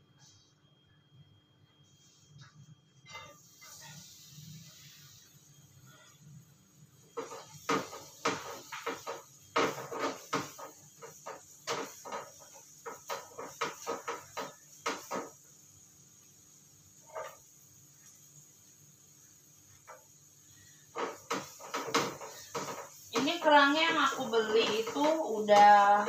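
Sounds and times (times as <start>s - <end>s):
spatula scraping a frying pan: 3.0s - 6.4s, 7.0s - 15.5s, 17.0s - 18.4s, 19.6s - 26.0s.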